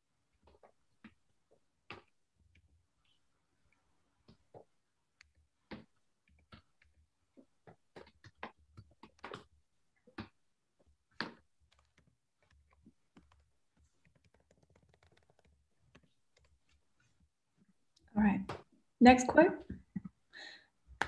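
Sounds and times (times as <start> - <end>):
keyboard typing: 11.2 - 16.6.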